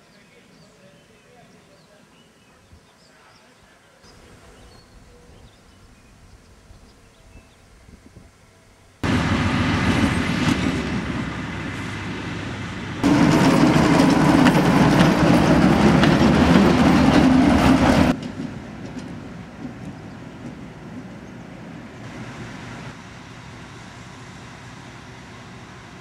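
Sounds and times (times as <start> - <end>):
faint outdoor background: 0.0 - 17.3, 17.9 - 26.0
diesel locomotive rumbling: 8.6 - 26.0.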